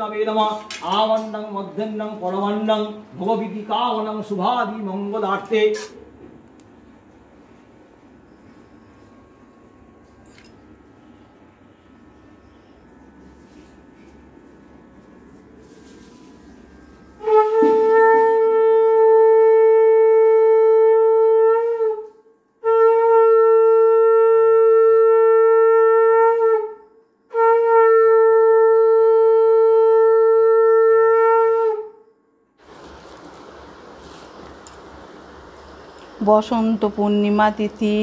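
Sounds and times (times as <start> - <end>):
conch shell blasts: 17.2 - 22.0, 22.6 - 36.2.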